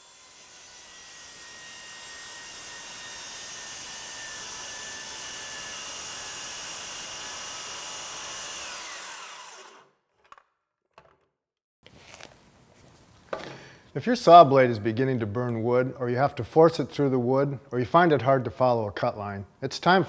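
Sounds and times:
saw blade rasping in wood: 0:00.0 - 0:09.9
circular saw motor whine: 0:08.3 - 0:09.9.

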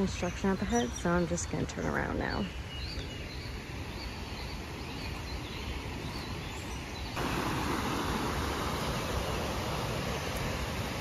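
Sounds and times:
faint bird chirps: 0:00.0 - 0:07.2
stream rushing: 0:00.0 - 0:11.0.

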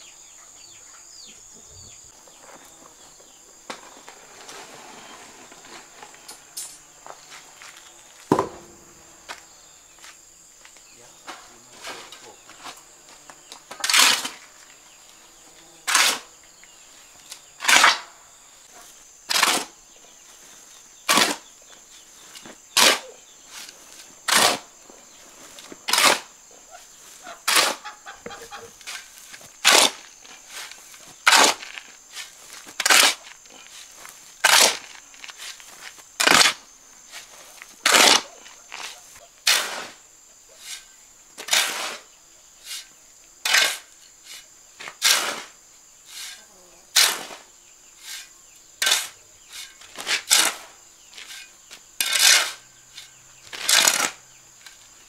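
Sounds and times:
sand and cement thrown on pile: 0:03.6 - 0:14.8, 0:15.6 - 0:16.4, 0:17.3 - 0:27.9, 0:28.8 - 0:55.0
shovel scraping concrete floor: 0:03.7 - 0:09.4, 0:11.2 - 0:14.7, 0:15.8 - 0:16.3, 0:17.3 - 0:19.8, 0:20.4 - 0:21.5, 0:22.2 - 0:54.9
thump: 0:08.3 - 0:09.1.

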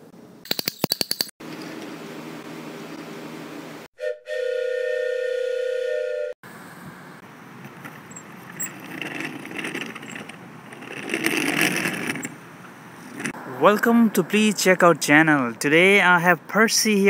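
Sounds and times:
train whistle chord: 0:04.0 - 0:06.4
rough noisy rattle: 0:07.6 - 0:12.4, 0:13.0 - 0:13.4.

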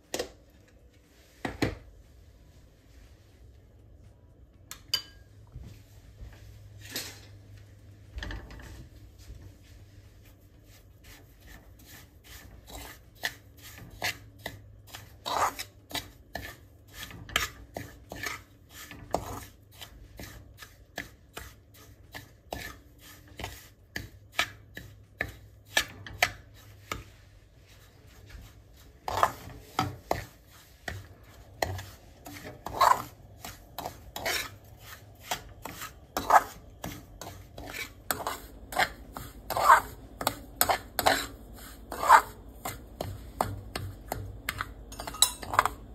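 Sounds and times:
metal spatula scraping pan: 0:06.8 - 0:07.4, 0:10.7 - 0:45.9.

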